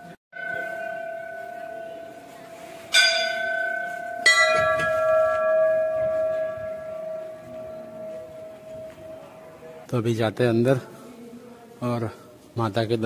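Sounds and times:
brass bell ringing: 0.3s - 9.8s.

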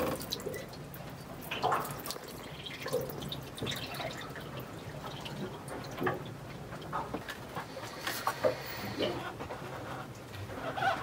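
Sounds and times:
water dripping in a mug: 1.4s - 7.0s.

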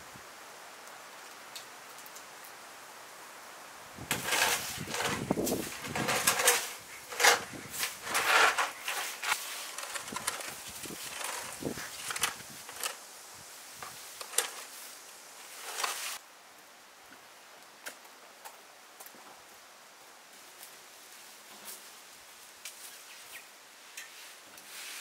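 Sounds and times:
plastic dustpan scraping: 4.0s - 13.0s, 15.5s - 16.2s
broom sweeping stone paving: 4.0s - 16.2s, 24.1s - 25.0s.

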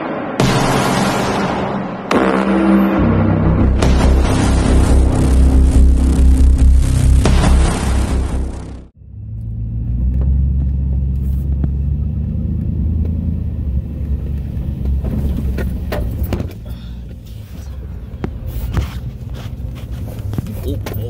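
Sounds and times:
intro music: 0.0s - 9.0s
engine and tyres rumbling: 0.0s - 21.0s.

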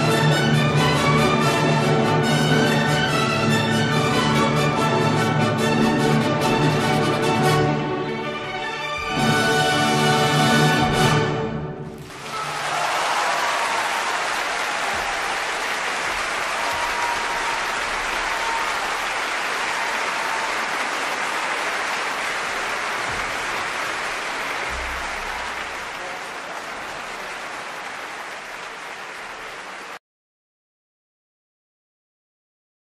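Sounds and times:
audience applauding: 11.9s - 30.0s.

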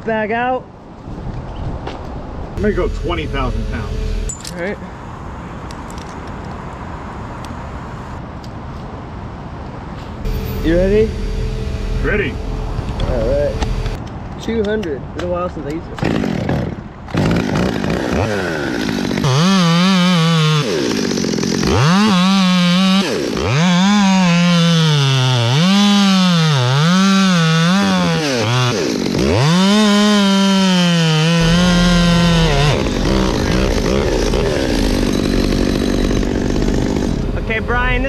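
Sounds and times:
chainsaw cutting wood: 10.2s - 14.0s, 16.0s - 37.4s.

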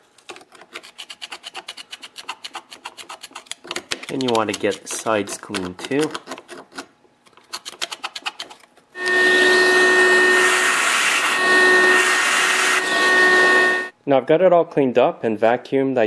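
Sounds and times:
screwdriver scraping metal: 7.4s - 13.9s
shop vac running: 9.0s - 14.0s.

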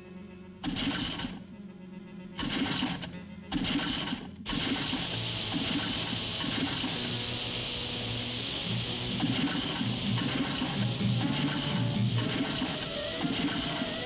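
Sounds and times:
outboard motor sputtering: 3.6s - 14.0s
waterfall roaring: 4.5s - 14.0s
background music: 7.2s - 14.0s.

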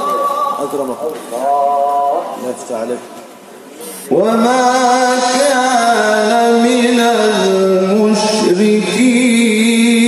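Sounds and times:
man chanting melodic recitation: 4.1s - 10.0s.

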